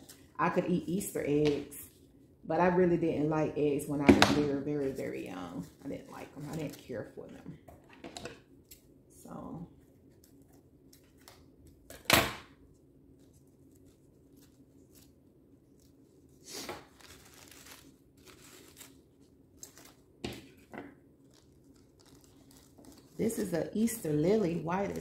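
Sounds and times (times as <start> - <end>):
paper rustling and crinkling: 13.1 - 23.5.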